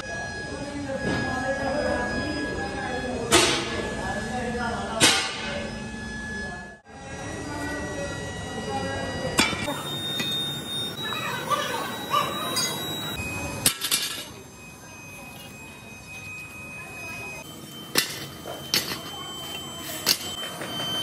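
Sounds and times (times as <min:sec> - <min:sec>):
voices talking: 0:00.0 - 0:21.0.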